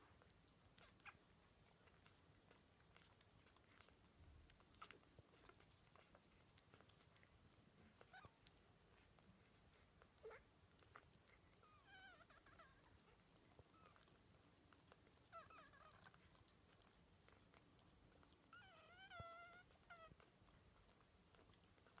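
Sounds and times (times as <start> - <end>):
puppies whimpering: 10.2 - 17.5, 18.2 - 22.0.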